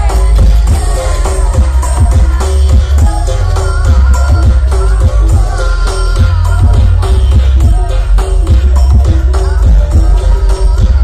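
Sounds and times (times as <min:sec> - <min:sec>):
loud bass-heavy music: 0:00.0 - 0:11.0.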